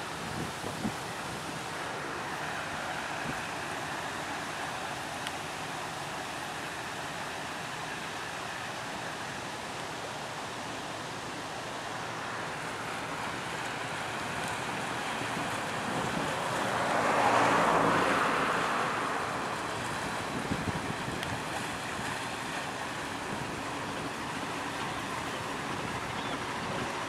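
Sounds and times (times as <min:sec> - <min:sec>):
wind on microphone: 0:00.0 - 0:01.8, 0:15.2 - 0:22.2
low boat engine hum: 0:00.0 - 0:27.0
rush of water from bow wave: 0:00.0 - 0:27.0
water washing: 0:11.6 - 0:27.0.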